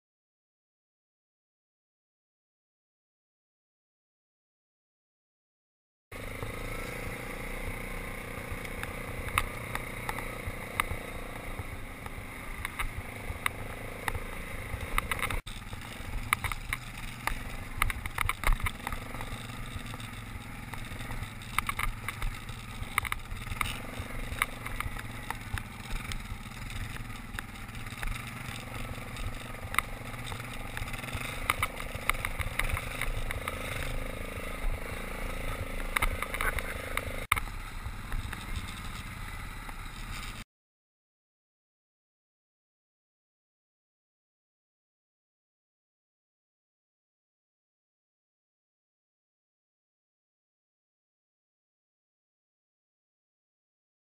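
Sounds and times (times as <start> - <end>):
atv engine running: 6.2 - 40.4
knocks and rattles over bumps: 12.0 - 39.0.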